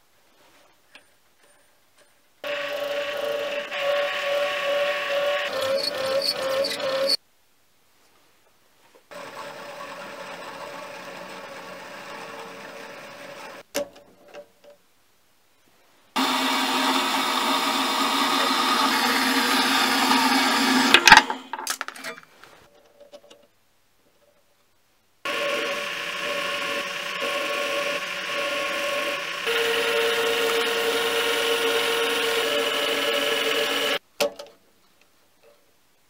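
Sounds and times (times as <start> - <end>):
bandsaw cutting steel: 2.4 - 7.2, 16.2 - 21.2, 25.3 - 34.0
lathe turning: 2.4 - 7.2, 9.2 - 13.6, 16.2 - 21.2, 25.3 - 34.0
quiet machine running: 25.3 - 34.0.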